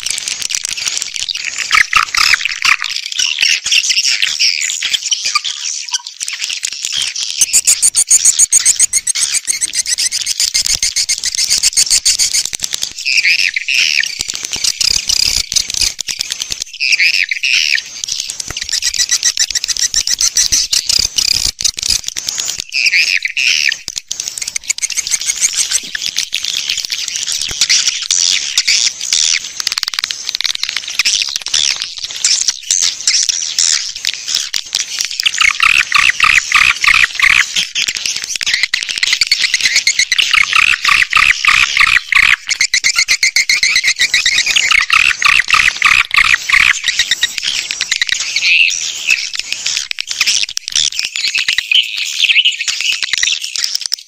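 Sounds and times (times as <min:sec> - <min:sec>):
swiftlets twittering: 0:07.4 - 0:21.7, 0:22.4 - 0:50.5.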